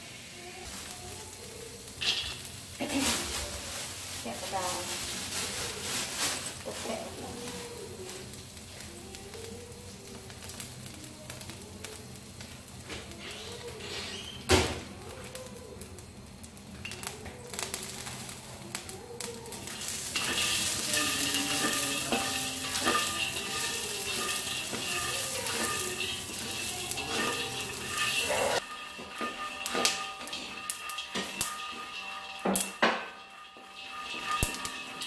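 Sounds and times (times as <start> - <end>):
peanuts sizzling in a wok: 0.0 - 35.0
spatula scraping a wok: 1.7 - 8.8, 13.2 - 14.4, 17.6 - 35.0
nuts rattling against a pan: 15.0 - 35.0
spatula knocking: 19.7 - 35.0.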